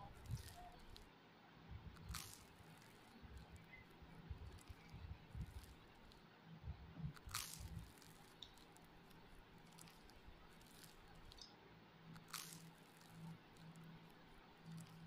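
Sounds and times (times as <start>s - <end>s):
chewing and squishing food: 0.1s - 1.1s, 2.0s - 6.2s, 7.1s - 11.5s, 12.1s - 15.0s.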